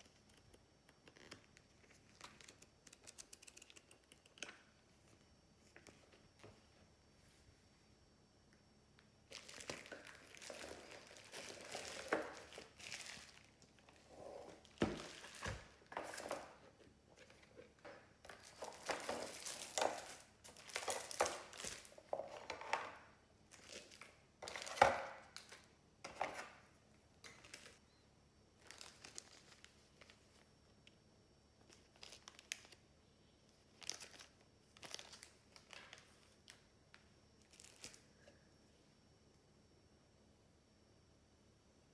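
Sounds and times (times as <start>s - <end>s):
bubble wrap crinkling: 9.3s - 16.5s, 18.3s - 22.4s, 28.6s - 30.2s, 31.7s - 32.8s, 33.7s - 36.6s, 37.4s - 38.0s.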